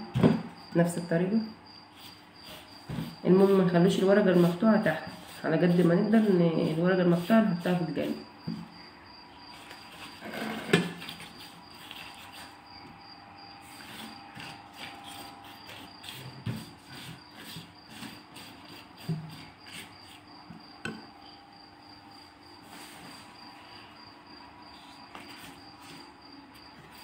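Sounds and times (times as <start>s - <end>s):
pastry brush rustling on sheets: 2.0s - 8.2s, 11.0s - 12.6s, 13.6s - 20.3s, 22.6s - 23.4s.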